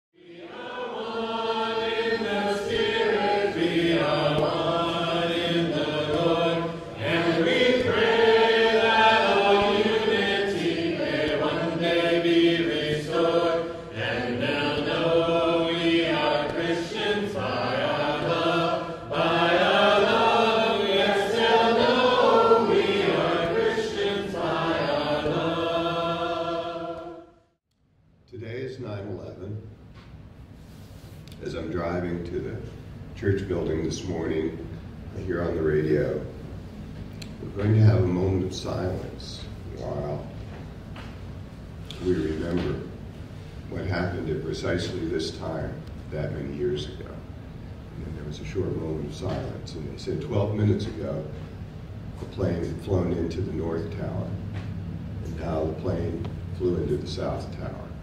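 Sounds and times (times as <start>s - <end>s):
congregation singing a hymn: 0.2s - 27.4s, 41.9s - 47.1s.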